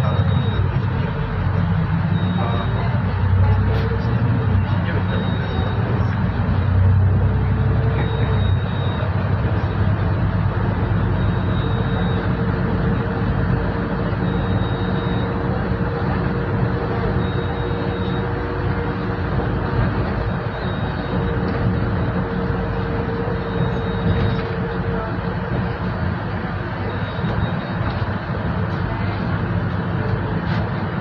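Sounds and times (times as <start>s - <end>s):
faint high beep: 0.0s - 0.7s, 2.1s - 4.0s, 4.6s - 6.2s, 7.6s - 9.2s, 11.0s - 15.7s, 17.0s - 19.1s, 20.2s - 25.0s, 26.8s - 28.0s
bus engine hum: 0.0s - 31.0s
road noise: 0.0s - 31.0s.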